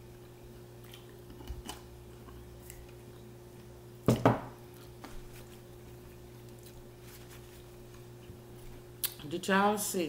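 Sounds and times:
faint steady hum: 0.0s - 10.0s
knocks on a table: 4.1s - 4.5s.

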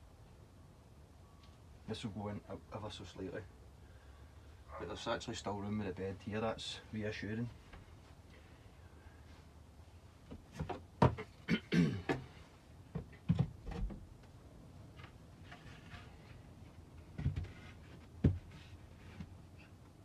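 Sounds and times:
wooden boards knocking and scraping: 10.3s - 11.4s, 12.9s - 14.1s, 17.0s - 19.4s.

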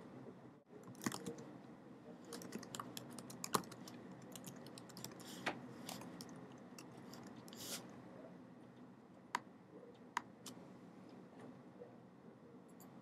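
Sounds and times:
typing on computer keyboard: 0.8s - 1.4s, 2.3s - 5.2s.

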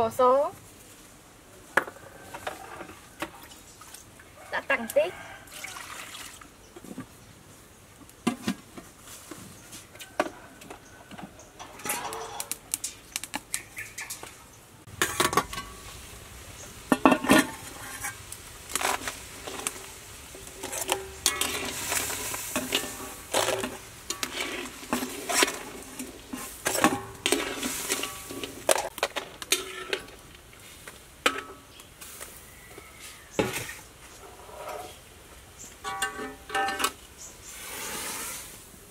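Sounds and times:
crabs frying: 10.4s - 34.2s
metal utensils scraping a wok: 11.5s - 13.1s, 14.9s - 32.2s, 33.0s - 35.1s, 35.7s - 38.6s.

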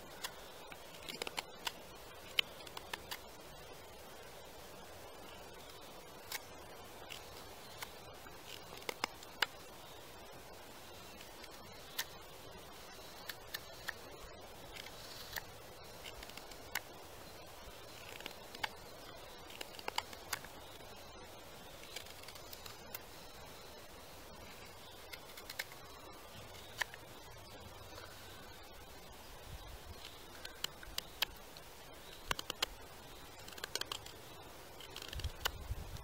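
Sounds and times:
faint steady hiss: 0.0s - 36.0s
knife carving wood clicks: 0.2s - 3.2s, 25.1s - 25.8s, 32.2s - 32.8s, 33.4s - 34.2s.

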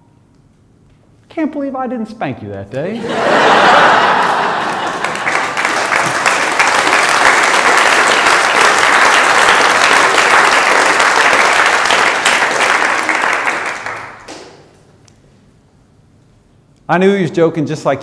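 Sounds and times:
audience applauding: 3.1s - 14.6s.

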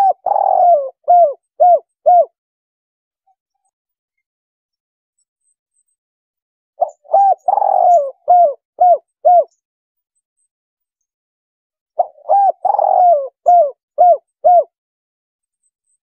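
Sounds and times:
dove cooing: 0.0s - 2.4s, 6.8s - 9.6s, 12.0s - 14.8s.

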